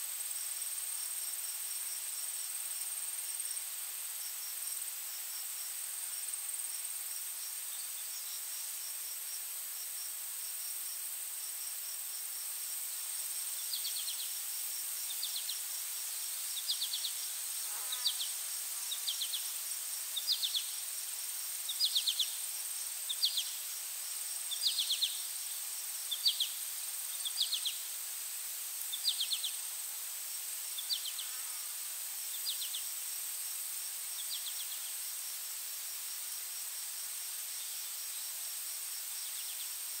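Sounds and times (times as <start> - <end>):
insects buzzing high-pitched: 0.1 - 40.0
insect chirps pulsed trill: 13.4 - 27.9.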